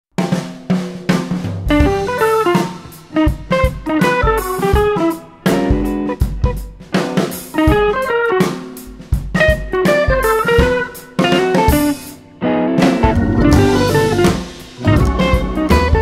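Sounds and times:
drum beat: 0.2 - 12.2, 12.8 - 16.0
picked string melody: 12.8 - 16.0.

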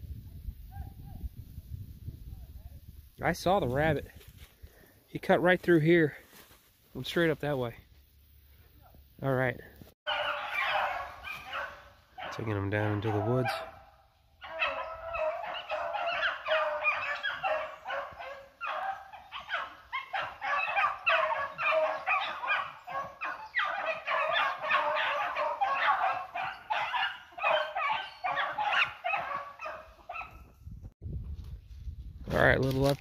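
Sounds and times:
hounds baying and barking: 10.1 - 30.5.

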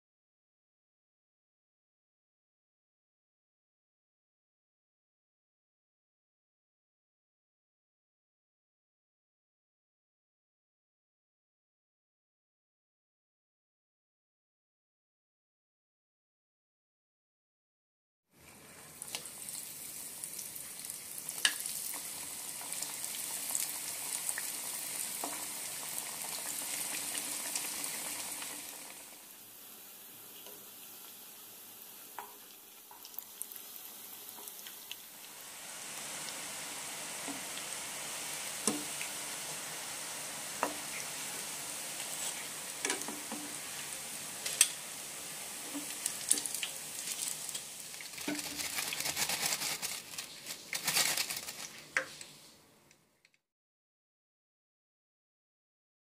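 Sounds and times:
food deep-frying in hot oil: 18.3 - 52.6
oil popping and crackling: 20.3 - 29.0, 45.6 - 52.2.

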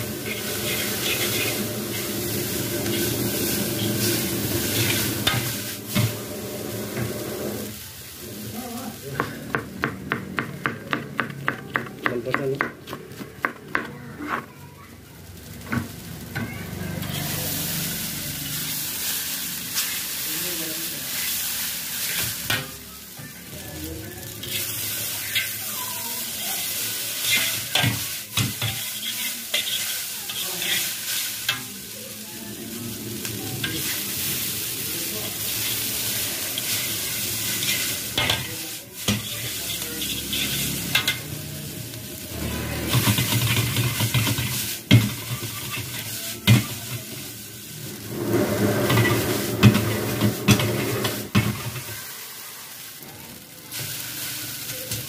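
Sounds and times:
noodles sizzling in a wok: 0.0 - 55.0
metal ladle scraping a pan: 0.2 - 6.1, 27.2 - 31.5, 36.6 - 41.2, 48.0 - 51.5.

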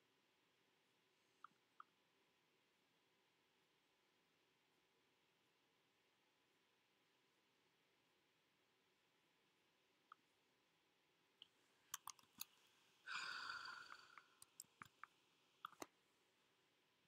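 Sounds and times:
computer mouse clicks: 11.4 - 12.6, 13.9 - 15.9.

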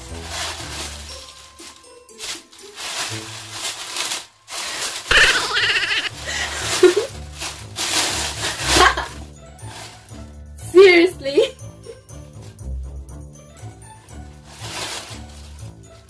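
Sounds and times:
background music with bass: 0.0 - 1.1, 6.2 - 16.0
tissue paper rustling: 0.0 - 10.3, 13.8 - 16.0
girl laughing: 5.1 - 7.1, 8.6 - 9.2.

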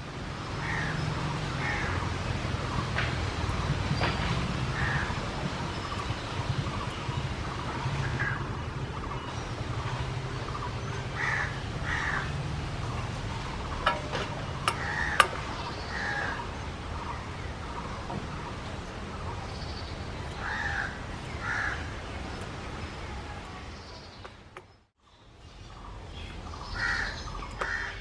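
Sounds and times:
crows cawing: 0.6 - 1.0, 1.6 - 2.0, 4.8 - 5.2, 11.2 - 12.3, 14.7 - 15.3, 20.4 - 21.9, 26.8 - 28.0.

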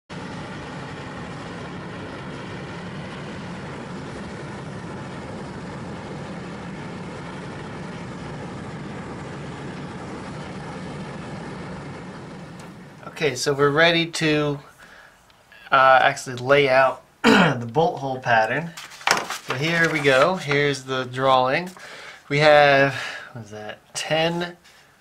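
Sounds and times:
furnace burner rushing: 0.1 - 15.5, 18.5 - 23.3
low hum: 0.1 - 23.3.

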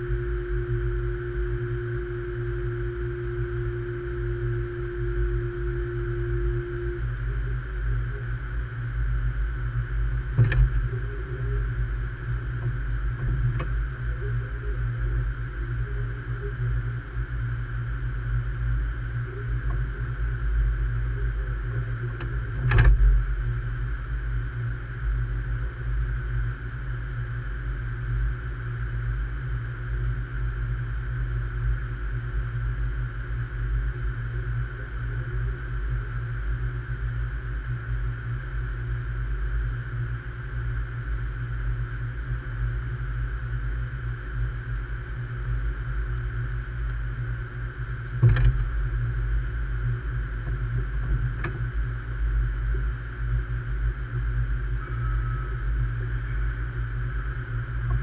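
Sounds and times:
steady higher hum: 0.0 - 58.0
train equipment low rumble: 0.0 - 58.0.

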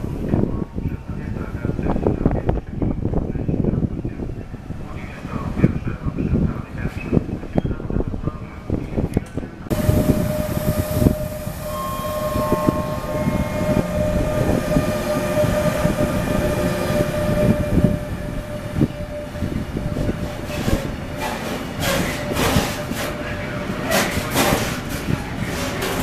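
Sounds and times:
train wheels rumbling on rail: 0.0 - 26.0
steady high whine: 9.7 - 23.9.

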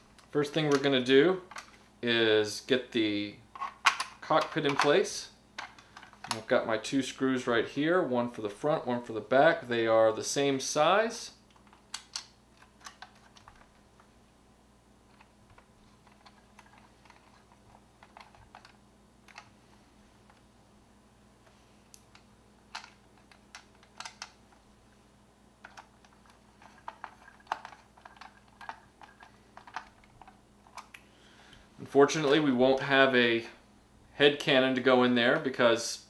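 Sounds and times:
plastic toy parts clicking: 25.6 - 31.0.

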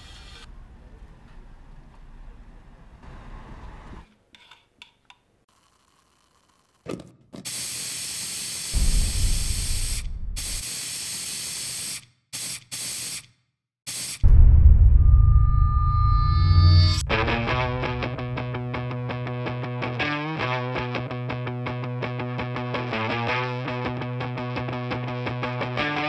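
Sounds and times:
paint spray gun hissing: 7.4 - 13.3, 13.9 - 14.2
low rumble: 8.8 - 10.6, 14.2 - 19.4.

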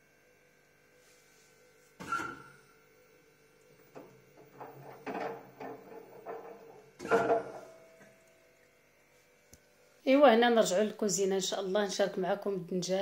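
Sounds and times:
faint steady hum: 0.0 - 13.0
washing machine drum clunking: 3.8 - 8.2.

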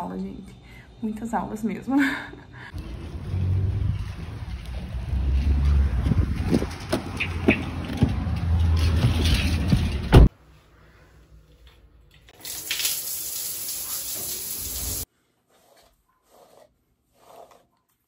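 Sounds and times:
wind buffeting microphone: 5.8 - 6.9
shower spraying water: 12.4 - 15.1.

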